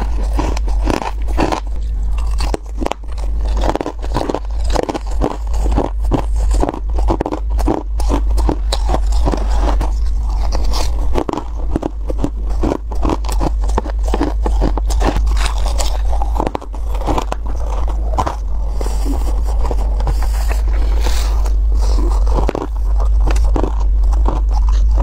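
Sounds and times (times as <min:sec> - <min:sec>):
frost being chewed: 0:00.0 - 0:25.0.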